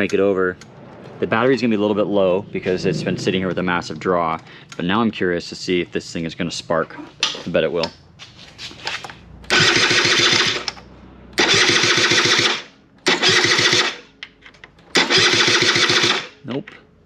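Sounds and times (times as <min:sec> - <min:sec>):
scooter engine cranking: 0:09.4 - 0:14.0, 0:14.8 - 0:16.4.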